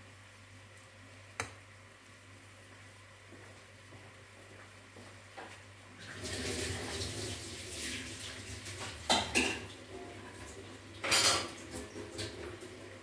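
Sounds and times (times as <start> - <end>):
kitchen utensils clanking: 11.0 - 12.4.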